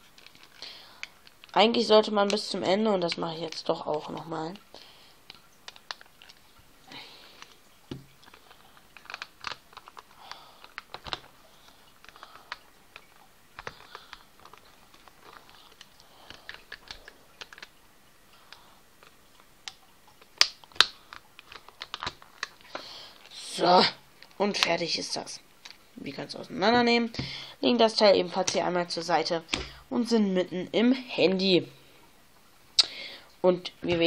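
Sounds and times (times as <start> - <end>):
plastic clips clicking: 7.3 - 11.4, 12.0 - 17.8, 18.5 - 22.9.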